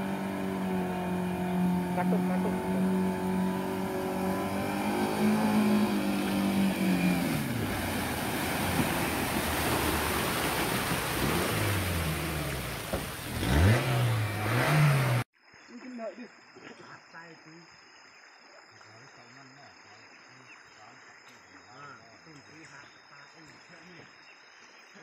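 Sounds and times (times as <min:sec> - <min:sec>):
vehicle engine revving: 0:00.0 - 0:15.3
water splashing bow wave: 0:01.6 - 0:14.5.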